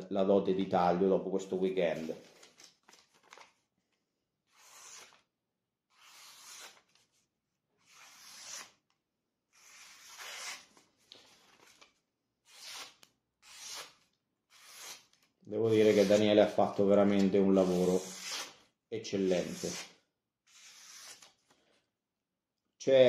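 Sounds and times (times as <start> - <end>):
knife slicing paper: 4.5 - 5.2, 5.9 - 7.0, 7.8 - 8.8, 9.6 - 10.7, 12.4 - 16.4, 20.5 - 21.4.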